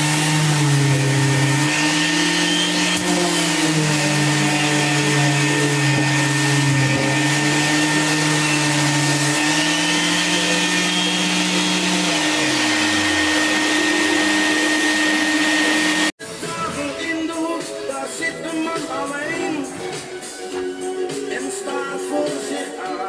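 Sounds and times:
electric orbital sander: 0:00.0 - 0:16.2
extraction vacuum whine: 0:00.0 - 0:16.2
music: 0:10.1 - 0:23.0.

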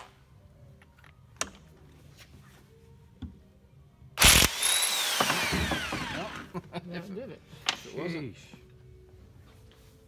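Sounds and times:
impact wrench running: 0:04.2 - 0:06.5.

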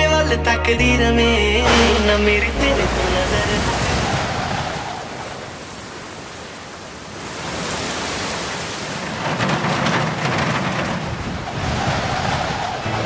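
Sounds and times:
thunder rumble: 0:01.6 - 0:05.7
heavy rain falling: 0:01.6 - 0:12.2.

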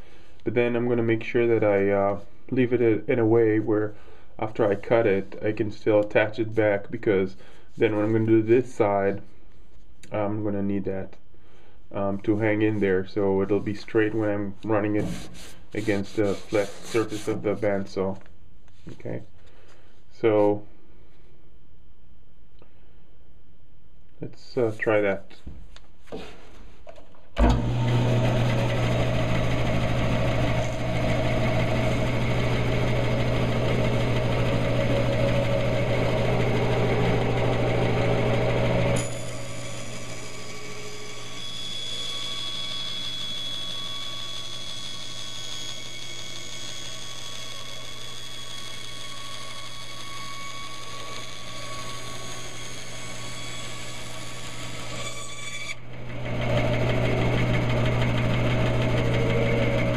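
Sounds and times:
bandsaw blade cutting wood: 0:14.9 - 0:17.5, 0:27.4 - 0:59.9
bandsaw motor hum: 0:27.4 - 0:59.9.

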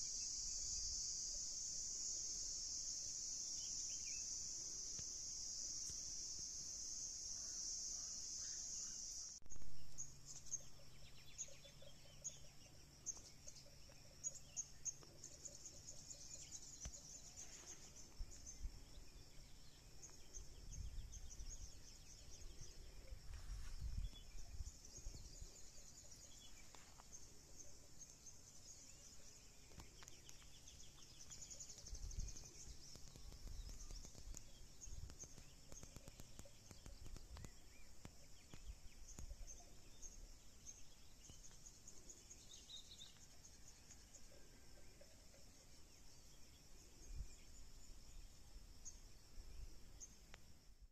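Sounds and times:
insects chirping: 0:00.0 - 0:50.9
wind rumbling on microphone: 0:20.3 - 0:25.6, 0:31.8 - 0:37.7.

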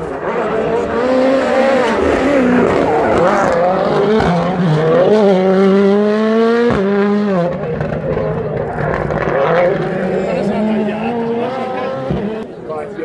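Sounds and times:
rally car engine: 0:00.0 - 0:13.0.

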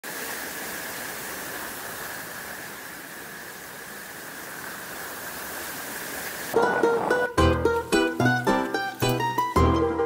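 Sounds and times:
stream rushing over rocks: 0:00.0 - 0:09.7.

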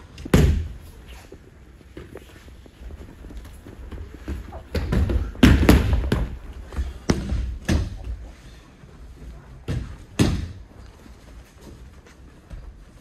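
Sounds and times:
bodies thudding on mats: 0:03.0 - 0:08.2.

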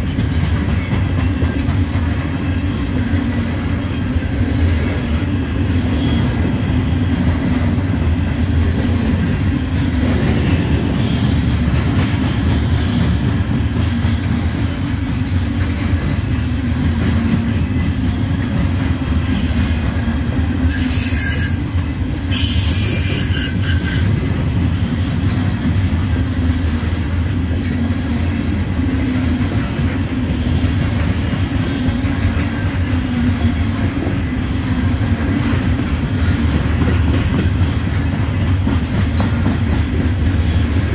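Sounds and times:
freight train wheels rumbling on rail: 0:00.0 - 0:40.9
high-pitched wheel squeal: 0:20.7 - 0:21.7, 0:22.3 - 0:24.2.

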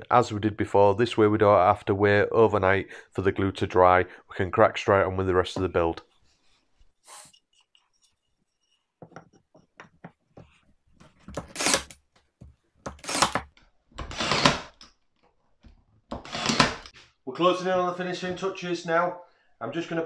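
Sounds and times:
nail gun firing: 0:14.1 - 0:14.8, 0:16.2 - 0:16.9.

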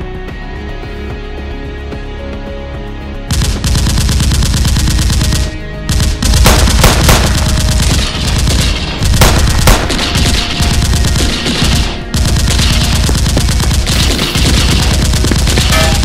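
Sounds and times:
gunshots: 0:03.3 - 0:16.0.

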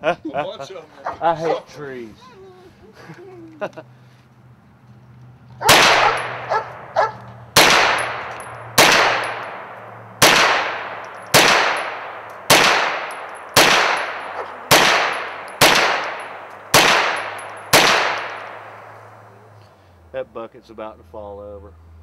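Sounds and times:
rifle shots with echo: 0:05.6 - 0:19.1
light metallic clinks: 0:08.0 - 0:09.8, 0:10.9 - 0:19.0.

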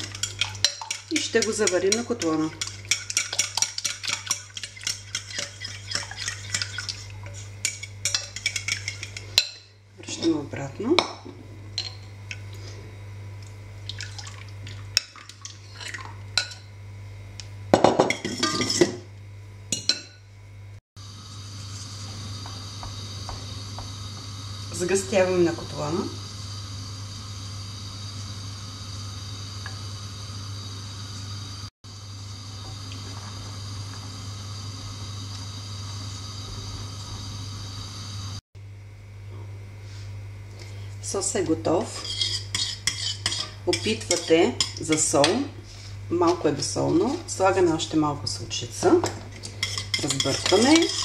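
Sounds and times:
constant low hum: 0:00.0 - 0:30.4
sauce simmering hiss: 0:21.0 - 0:38.4
fork scraping glass and metal: 0:41.9 - 0:44.7, 0:49.6 - 0:51.0.

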